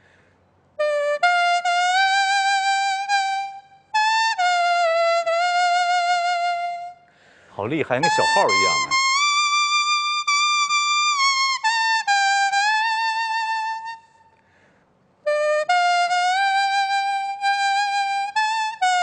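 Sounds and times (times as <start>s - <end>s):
leaf reed instrument melody: 0.8s - 7.0s, 7.8s - 14.0s.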